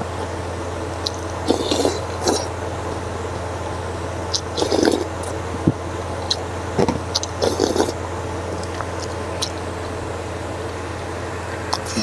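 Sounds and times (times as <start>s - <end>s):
steady low hum: 0.0s - 12.0s
slurping noodle soup: 1.0s - 2.5s, 4.3s - 5.4s, 7.1s - 8.0s.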